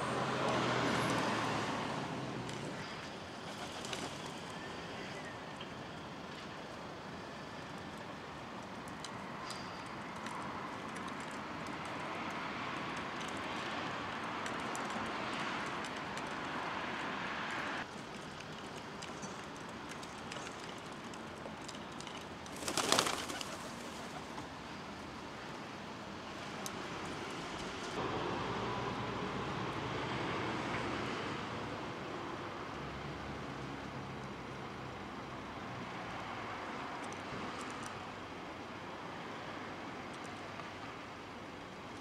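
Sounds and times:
wingbeats of birds taking off: 3.4s - 4.4s, 22.5s - 24.5s.

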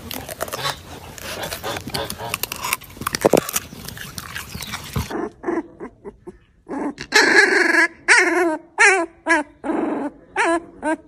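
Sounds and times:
puppy crying: 5.0s - 11.0s.

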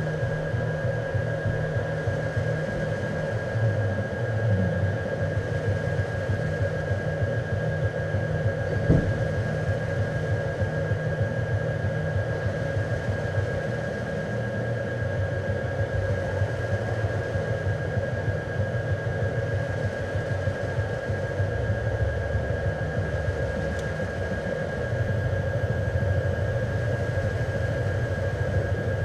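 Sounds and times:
low throbbing drone: 0.0s - 29.0s
short knock: 8.9s - 9.3s.

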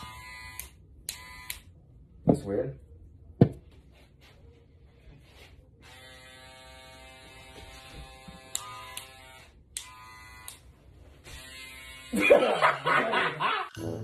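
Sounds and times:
electric hair clippers buzzing: 0.0s - 1.8s, 5.8s - 12.4s.

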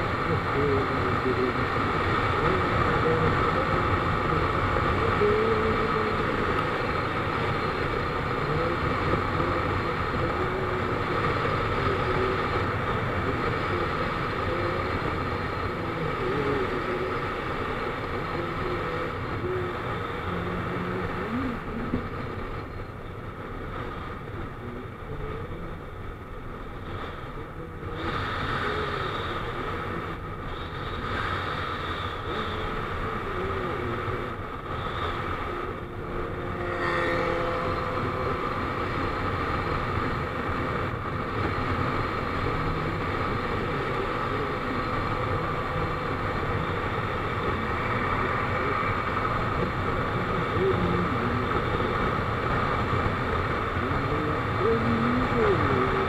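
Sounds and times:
road noise: 0.0s - 56.0s
wind noise: 0.0s - 56.0s.

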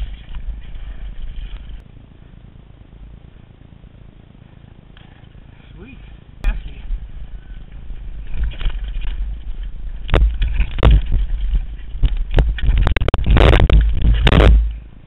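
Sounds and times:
wheels knocking on rocks: 6.4s - 14.8s
mountain bike clattering over rocks: 6.5s - 14.8s
bike crashing onto rocks: 8.2s - 14.8s.

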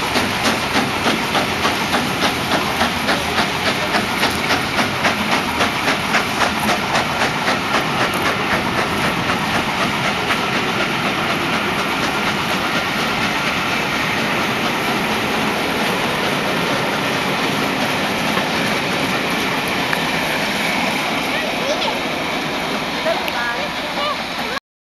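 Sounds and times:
steam locomotive exhaust beats: 0.0s - 24.6s.

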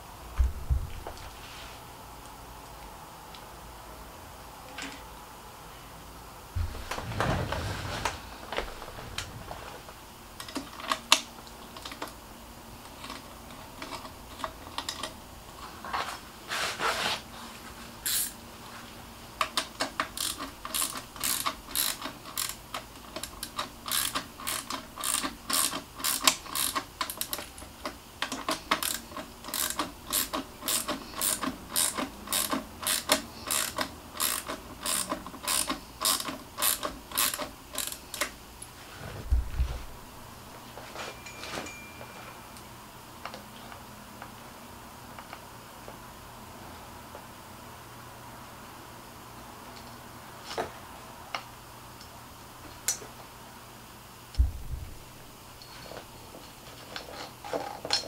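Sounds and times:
handling noises: 6.6s - 11.1s, 38.6s - 42.4s
ratchet bit driver clicking: 20.0s - 27.4s, 28.3s - 38.3s.

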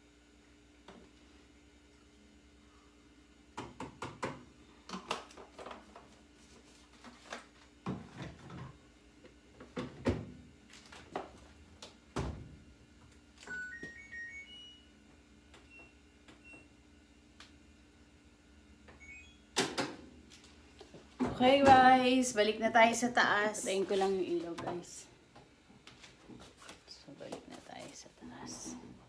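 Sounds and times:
electronic beeps rising in pitch: 13.5s - 14.8s.

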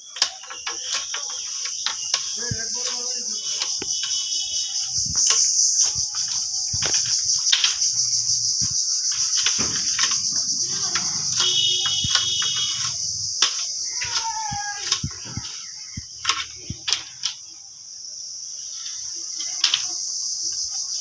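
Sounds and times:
knife splitting bamboo on wood: 0.0s - 4.3s, 9.3s - 17.3s
high insect drone: 0.0s - 21.0s.

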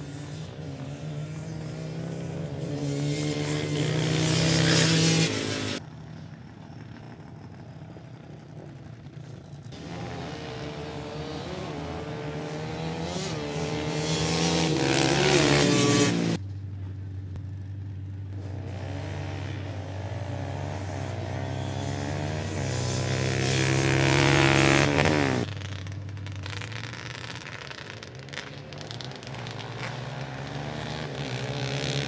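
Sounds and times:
atv engines revving at full throttle: 0.0s - 32.0s
engine running quietly: 16.4s - 20.2s.

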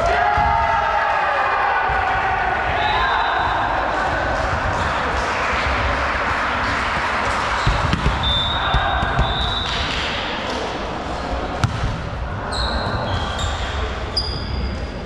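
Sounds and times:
players' voices: 0.0s - 15.0s
volleyball bouncing on floor: 7.6s - 10.1s, 11.6s - 12.0s.

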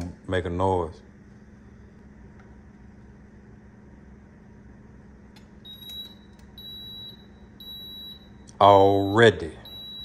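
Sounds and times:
faint steady hum: 0.0s - 10.0s
short high beeps: 5.7s - 10.0s.

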